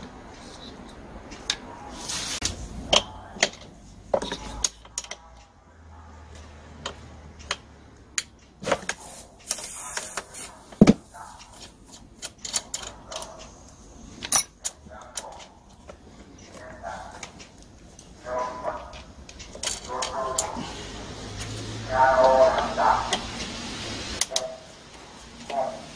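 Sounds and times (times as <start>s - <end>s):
tools and engine parts clicking: 2.4s - 5.6s, 6.3s - 9.7s, 10.7s - 20.6s.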